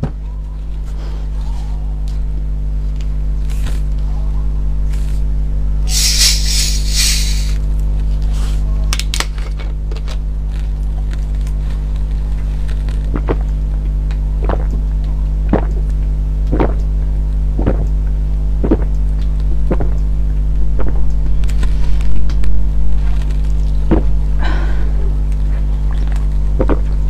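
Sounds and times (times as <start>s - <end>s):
low hum: 5.5s - 7.8s, 11.0s - 27.0s
person gulping drink: 13.0s - 13.8s, 14.4s - 14.9s, 15.5s - 15.9s, 16.5s - 16.9s, 17.6s - 18.0s, 18.6s - 20.0s, 25.3s - 27.0s.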